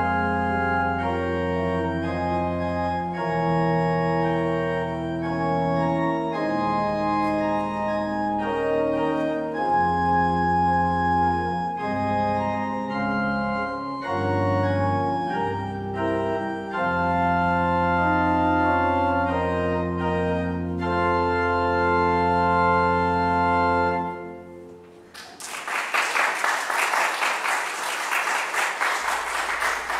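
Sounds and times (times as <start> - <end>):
organ playing chords: 0.0 - 25.2
congregation applauding: 25.0 - 29.9.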